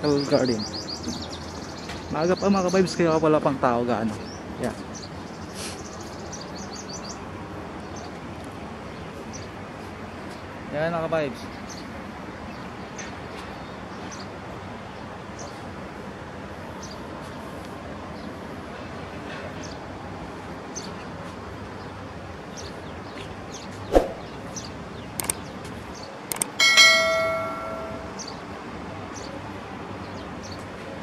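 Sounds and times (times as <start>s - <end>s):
sharp thump: 23.9s - 24.3s
metal clang ringing: 26.6s - 28.3s.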